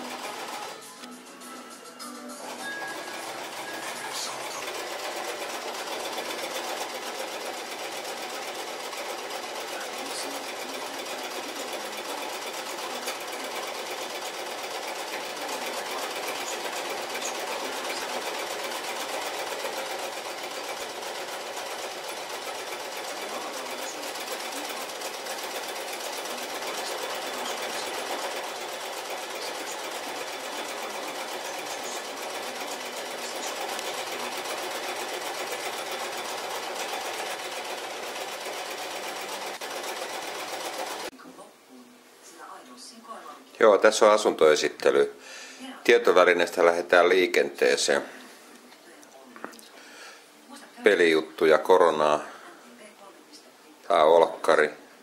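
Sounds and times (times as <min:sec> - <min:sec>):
electric sewing machine running: 0:00.0 - 0:01.1, 0:02.4 - 0:41.1.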